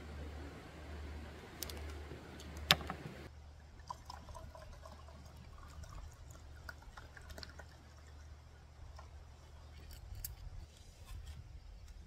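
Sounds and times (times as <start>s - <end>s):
liquid pouring into metal cup: 3.8s - 8.3s.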